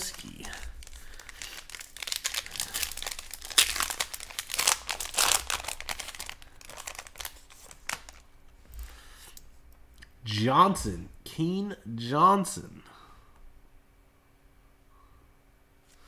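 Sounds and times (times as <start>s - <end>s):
plastic wrappers crinkling: 0.0s - 8.4s.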